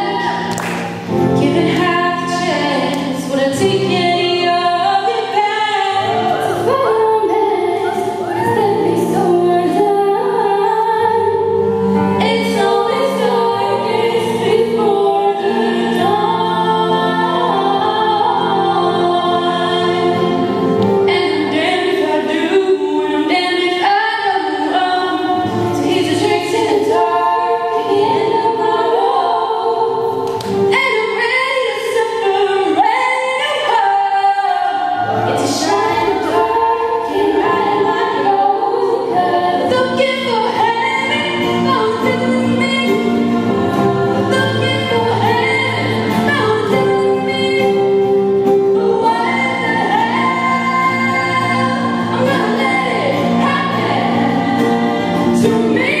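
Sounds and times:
female vocal group singing: 0.0 - 56.0.

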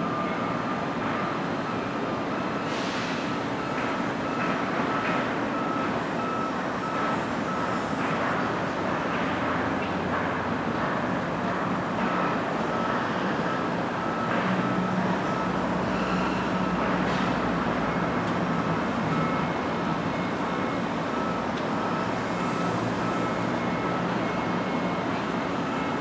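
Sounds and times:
machinery and traffic noise: 0.0 - 26.0
backup alarm beeping: 17.9 - 26.0.

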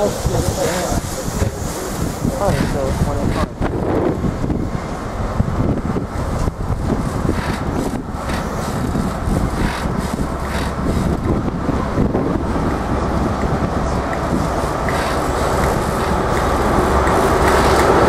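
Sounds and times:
train rumbling past: 0.0 - 18.0
wheel clicks over rail joints: 7.1 - 11.3, 14.1 - 18.0.

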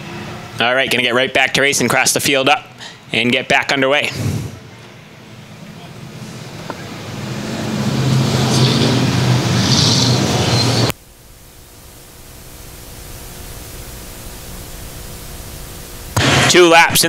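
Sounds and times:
distant engines: 0.0 - 1.3, 4.2 - 11.0
stock car engines passing: 5.2 - 10.9.

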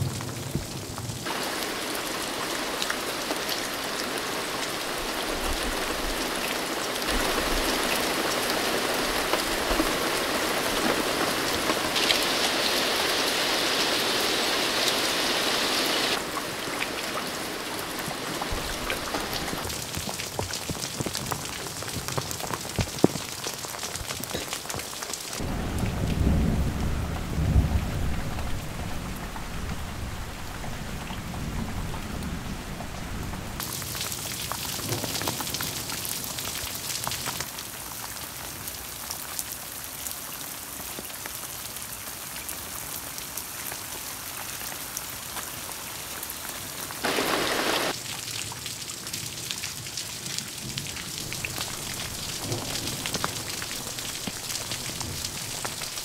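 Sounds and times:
rain falling: 0.0 - 56.0
low thunder rumble: 25.4 - 33.6.

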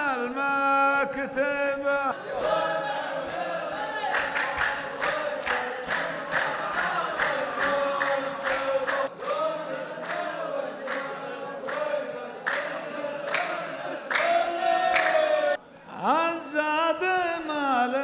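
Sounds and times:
men chanting in unison: 0.0 - 18.0
rhythmic clapping: 2.4 - 15.5.

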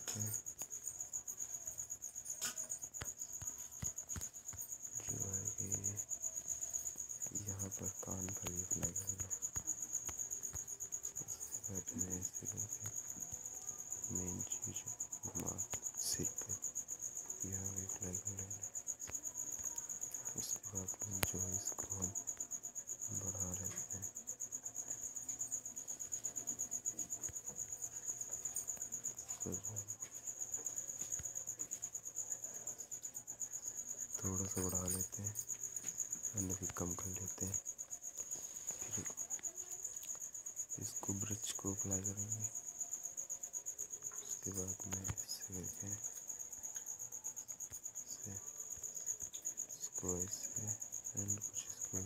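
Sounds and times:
cricket chirping: 0.0 - 52.0.

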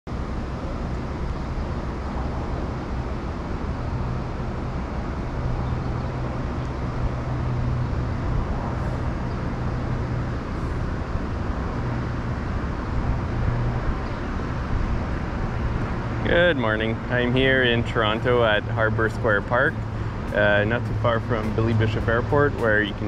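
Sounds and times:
road traffic rumble: 0.1 - 23.0
low drone: 12.5 - 23.0.

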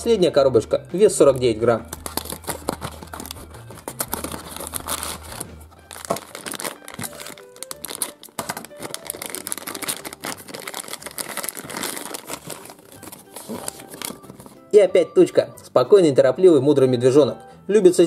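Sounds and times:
plastic bag crinkling: 1.4 - 14.6
cardboard box opening: 1.9 - 14.6.

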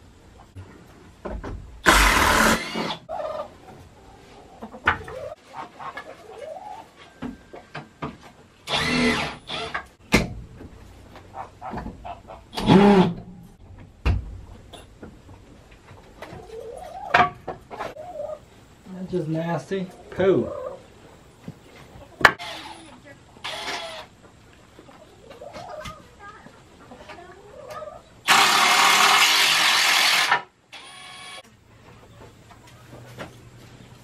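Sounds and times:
hens clucking: 3.1 - 7.7, 10.8 - 13.3, 14.6 - 18.8, 19.7 - 28.3.

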